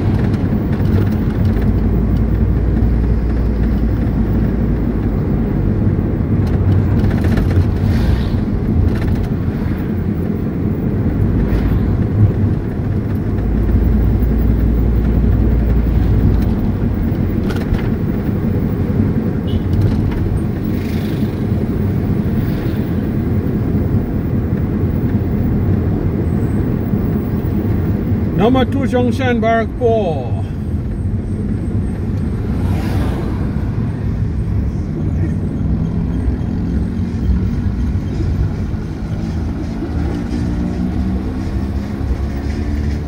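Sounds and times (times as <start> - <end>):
car engine and tyres rumbling: 0.0 - 43.0.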